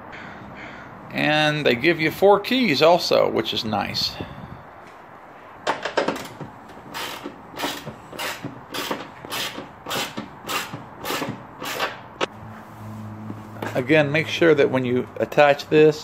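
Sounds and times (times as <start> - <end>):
hood latch clicking and rattling: 5.6 - 6.5.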